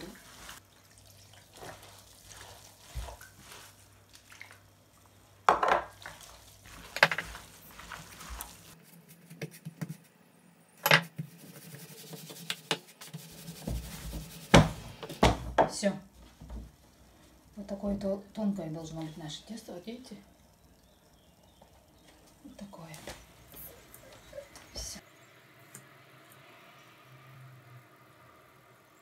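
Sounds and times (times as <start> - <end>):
mixing meat in glass bowl: 0.0 - 4.6, 5.9 - 8.8.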